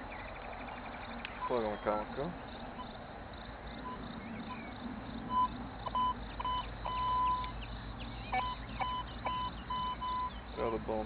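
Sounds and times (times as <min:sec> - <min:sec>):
metal detector beeping: 0:05.3 - 0:07.5, 0:08.3 - 0:10.3.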